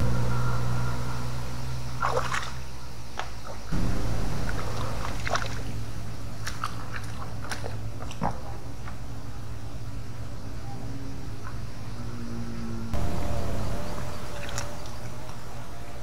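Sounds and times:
low steady hum: 0:00.0 - 0:16.0
water sloshing around boots: 0:02.0 - 0:02.6, 0:04.4 - 0:09.1, 0:14.3 - 0:15.4.

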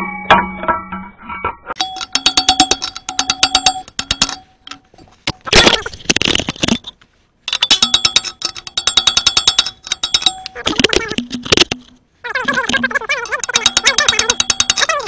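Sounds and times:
hammer striking steel drift: 0:00.0 - 0:05.5
rustling noise: 0:04.3 - 0:07.6.

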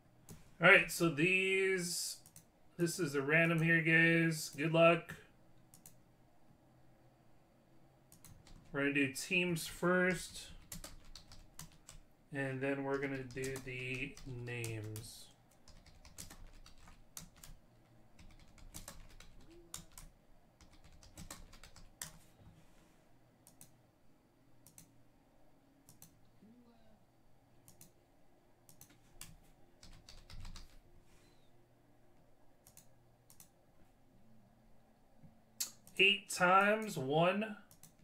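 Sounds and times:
computer keyboard typing: 0:08.1 - 0:08.7, 0:10.5 - 0:12.0, 0:12.9 - 0:22.2, 0:28.7 - 0:30.8, 0:37.7 - 0:38.0.

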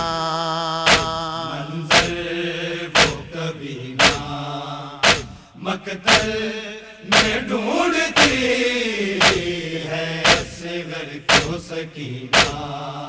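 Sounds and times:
voices singing a lament: 0:00.0 - 0:13.0
chest-beating slaps: 0:00.9 - 0:01.3, 0:01.9 - 0:02.2, 0:03.0 - 0:03.3, 0:04.0 - 0:04.4, 0:05.0 - 0:05.4, 0:06.1 - 0:06.4, 0:07.1 - 0:07.4, 0:08.2 - 0:08.4, 0:09.2 - 0:09.6, 0:10.2 - 0:10.6, 0:11.3 - 0:11.6, 0:12.3 - 0:12.7.

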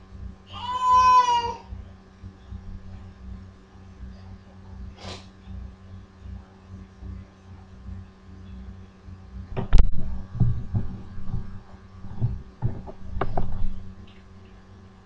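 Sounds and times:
steady low hum: 0:00.0 - 0:15.0
dull low thumps and knocks: 0:09.3 - 0:14.2.

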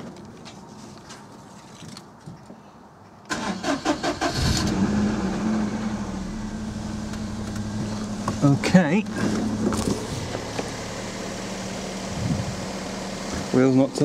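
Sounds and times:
car engine cranking and starting: 0:03.3 - 0:14.0.

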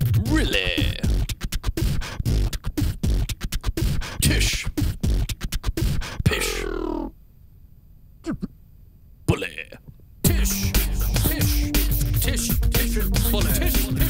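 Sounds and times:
person beatboxing: 0:00.0 - 0:07.1, 0:10.3 - 0:14.0
falling vocal sweep: 0:10.3 - 0:14.0.

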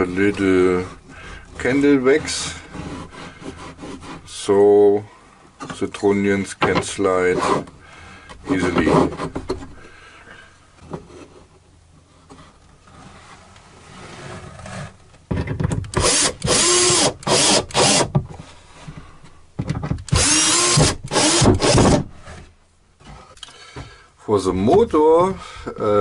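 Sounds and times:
cordless drill driving screws: 0:15.9 - 0:18.1, 0:20.1 - 0:22.0.

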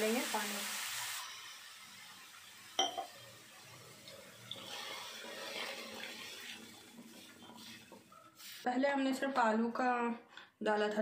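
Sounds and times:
water pouring into a pan: 0:00.0 - 0:08.6.

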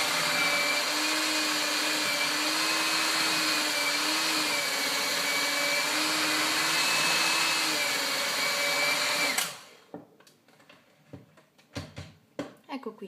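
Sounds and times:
electric hand mixer running: 0:00.0 - 0:09.9.

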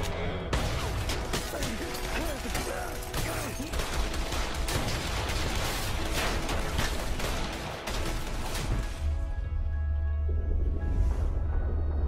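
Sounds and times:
rapid gunfire: 0:00.0 - 0:08.9.

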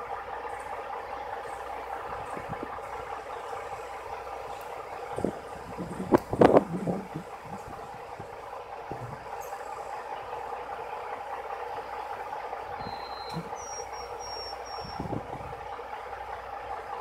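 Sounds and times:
engine hum of idling vehicles: 0:00.0 - 0:17.0
whistled notes: 0:12.8 - 0:15.1.

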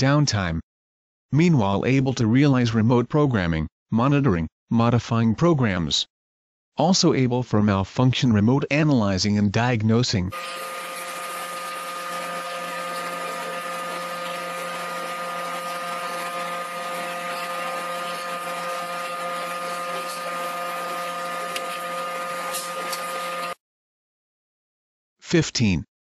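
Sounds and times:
factory machinery humming: 0:10.4 - 0:23.6.

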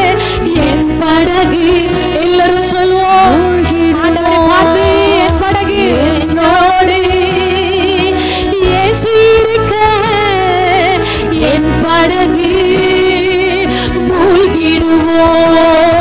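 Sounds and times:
church worship music: 0:00.0 - 0:16.0.

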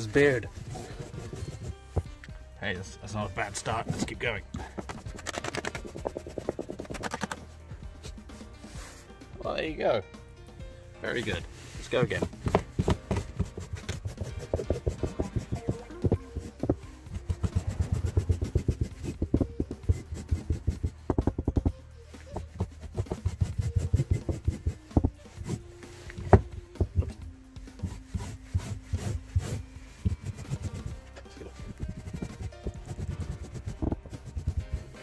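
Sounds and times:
lint remover scraping carpet: 0:00.0 - 0:02.1, 0:11.3 - 0:16.5, 0:17.1 - 0:21.0, 0:27.8 - 0:35.0.

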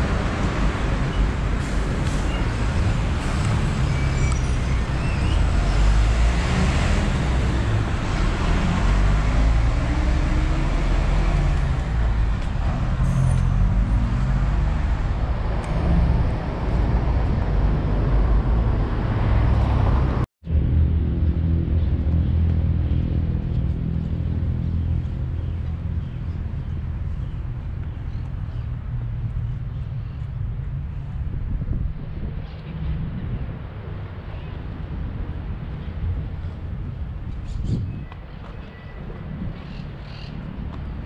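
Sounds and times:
engine and tyre rumble: 0:00.0 - 0:41.0.

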